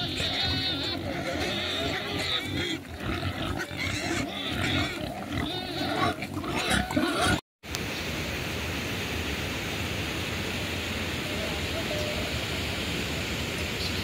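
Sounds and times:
pigs grunting and squealing: 0.0 - 7.4.

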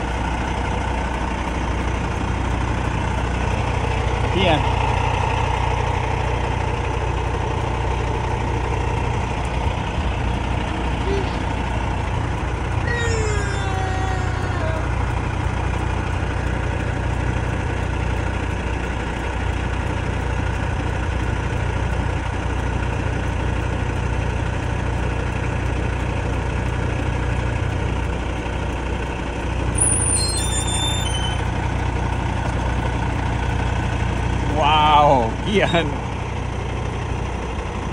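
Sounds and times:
diesel truck engine idling: 0.0 - 37.9
high-pitched squeaks: 29.7 - 31.5.

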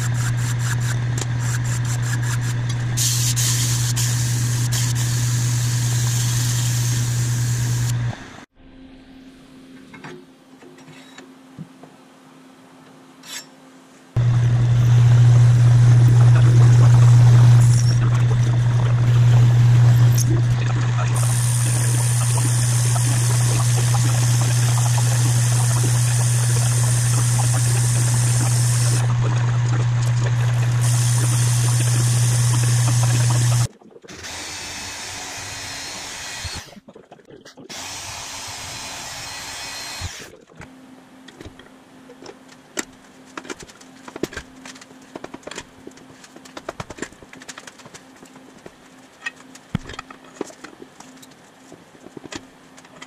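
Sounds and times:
metal lathe humming: 14.2 - 36.7
metal-cutting bandsaw: 16.0 - 29.1, 30.3 - 36.8.

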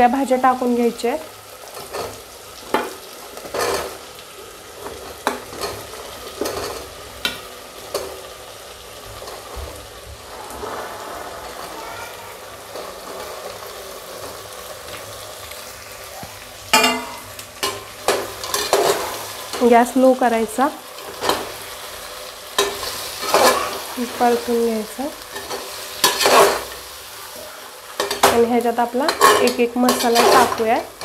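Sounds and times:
oil sizzling: 0.0 - 31.0
metal spatula scraping plate: 22.6 - 23.9, 25.4 - 26.8, 29.1 - 30.7.

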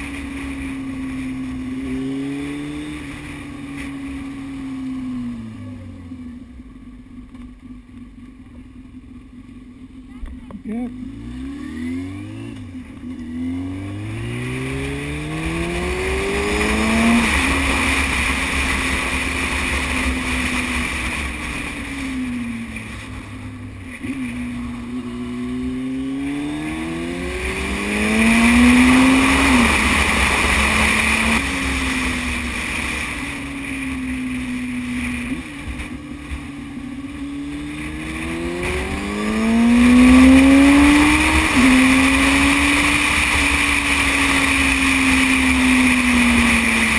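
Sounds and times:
low rumble of wind: 0.0 - 46.9
motorcycle engine accelerating: 0.0 - 46.9.

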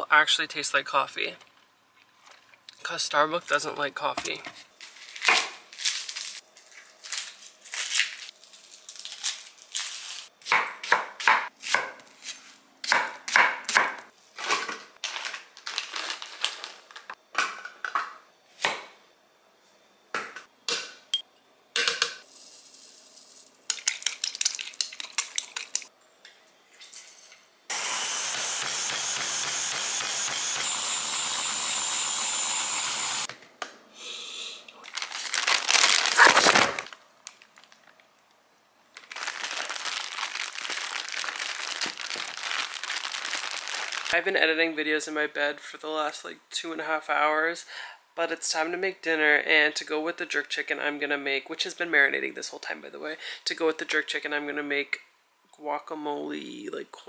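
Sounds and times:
food processor blending: 27.7 - 33.3.

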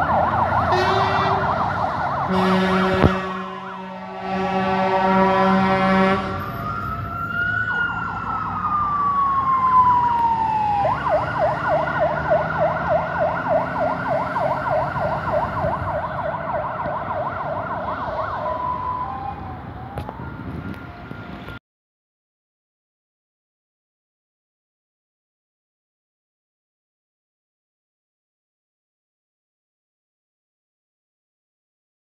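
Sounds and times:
siren wailing and yelping: 0.0 - 5.2, 6.3 - 21.0
fire engine horn blast: 0.4 - 7.0, 11.5 - 18.4.

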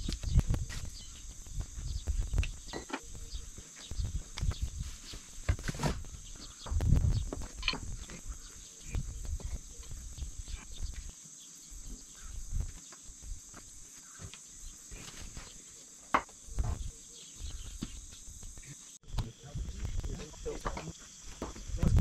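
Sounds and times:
insects buzzing: 0.0 - 22.0
low thumps and knocks: 5.5 - 8.1.

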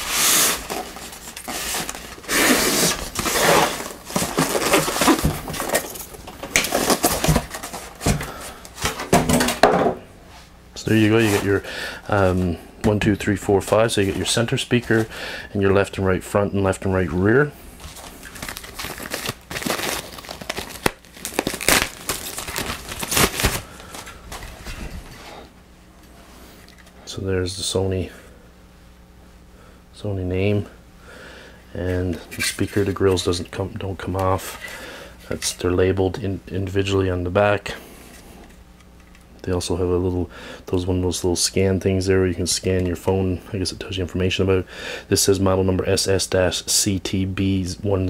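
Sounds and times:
foam rubbing and scraping: 0.0 - 5.3
plastic wrap crinkling: 0.0 - 8.9, 17.8 - 25.2.

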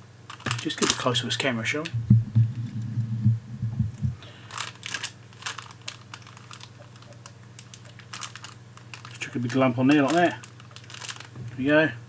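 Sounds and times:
faint low hum: 0.0 - 12.0
clicks and crinkles of handling: 0.3 - 2.0, 4.2 - 11.6
soft low thumps: 1.9 - 4.2.

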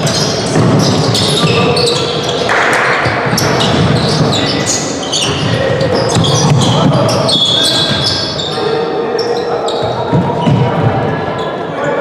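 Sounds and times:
football bouncing and struck: 0.0 - 7.2
shoe squeaks: 0.0 - 12.0
voices of players and spectators: 0.0 - 12.0.

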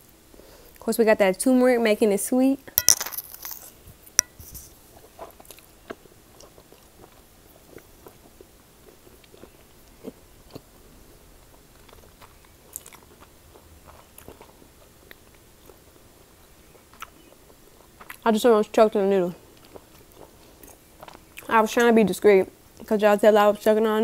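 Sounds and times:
person chewing noodles: 5.0 - 15.9, 16.6 - 18.2, 19.4 - 21.5.

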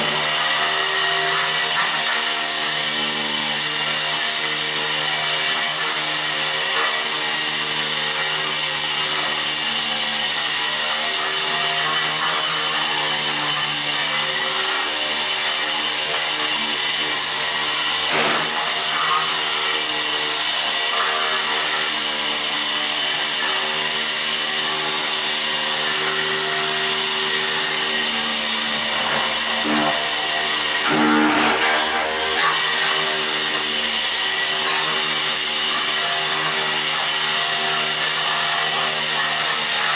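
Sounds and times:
floor scraper motor hum: 0.0 - 39.9
blade scraping concrete floor: 17.8 - 21.9, 25.8 - 39.9.

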